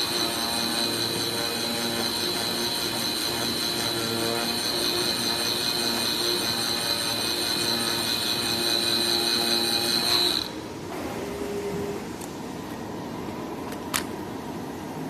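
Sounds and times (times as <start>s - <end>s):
cutting table high whine: 0.0s - 10.9s.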